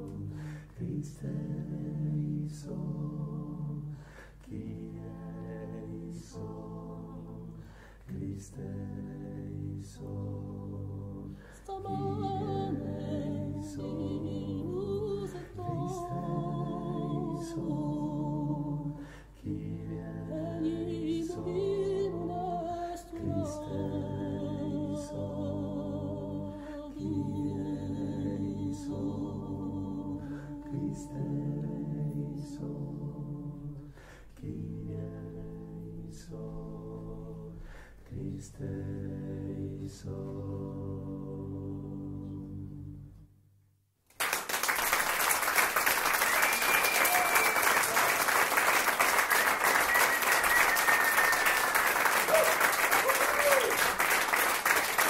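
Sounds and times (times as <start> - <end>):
men singing in close harmony: 0.0 - 42.8
higher voice singing ornamented lines: 46.0 - 53.9.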